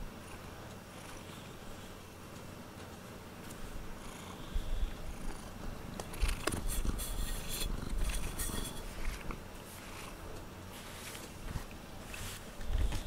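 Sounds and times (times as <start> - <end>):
cat purring: 0.1 - 2.1, 3.7 - 11.0
fur rustling on microphone: 6.6 - 13.0.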